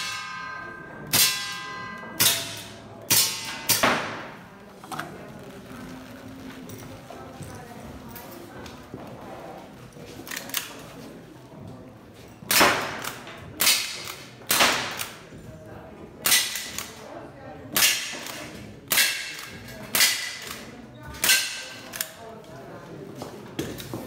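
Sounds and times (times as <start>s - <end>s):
pellet ringing on steel plate: 0.0s - 3.7s.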